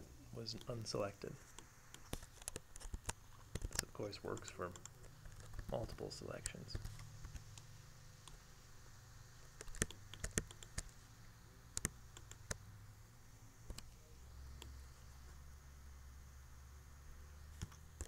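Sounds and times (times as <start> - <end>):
low steady hum: 0.0 - 18.0
keyboard and mouse clicks: 1.5 - 7.7, 9.6 - 11.0, 11.7 - 12.6, 13.7 - 13.9, 17.6 - 18.0.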